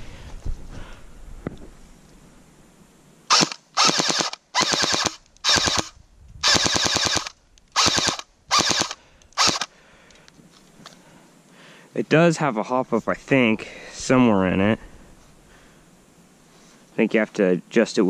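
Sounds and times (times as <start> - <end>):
electric toy gun firing bursts: 3.3 - 9.7.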